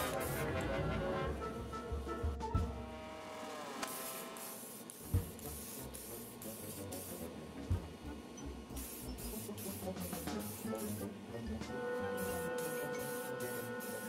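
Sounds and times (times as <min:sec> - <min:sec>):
spray paint can hissing: 0:00.0 - 0:00.5, 0:03.7 - 0:07.3, 0:08.7 - 0:11.1, 0:12.1 - 0:14.0
faint background music: 0:00.0 - 0:03.0, 0:05.0 - 0:14.0.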